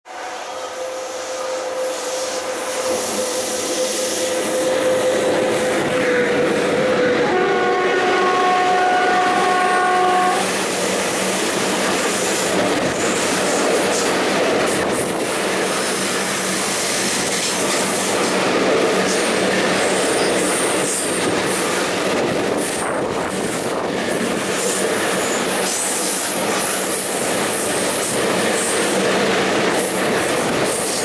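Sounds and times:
freight train rumbling past: 0.1s - 31.0s
train horn blast: 0.7s - 10.6s.

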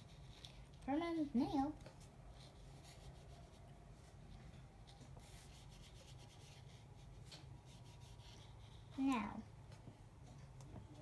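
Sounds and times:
paintbrush rubbing on paper: 0.0s - 0.6s, 2.0s - 9.0s
low room hum: 0.0s - 11.0s.

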